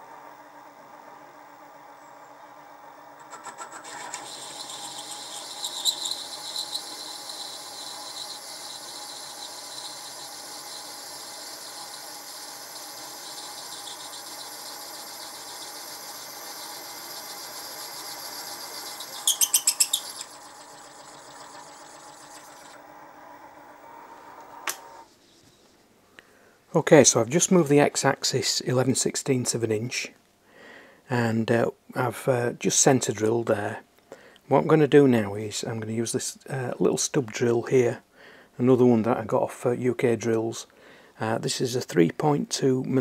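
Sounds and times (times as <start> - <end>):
mill spindle running: 0.0 - 25.1
reamer squealing with chatter: 3.8 - 22.8.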